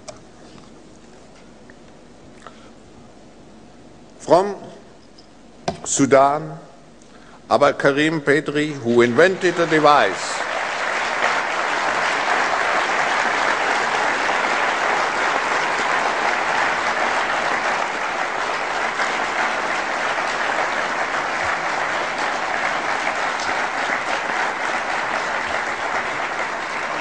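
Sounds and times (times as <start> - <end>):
large audience applauding: 8.6 - 27.0.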